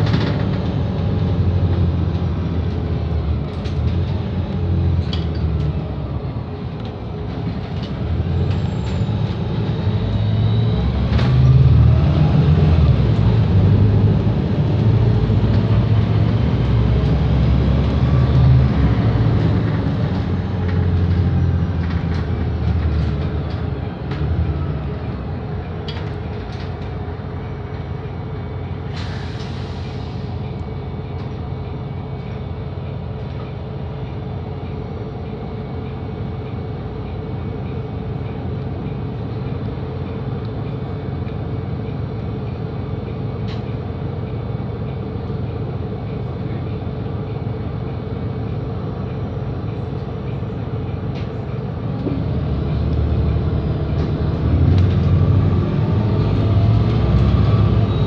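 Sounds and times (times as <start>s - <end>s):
bus diesel engine idling: 0.0s - 10.8s, 11.4s - 58.0s
engine revving: 52.2s - 58.0s.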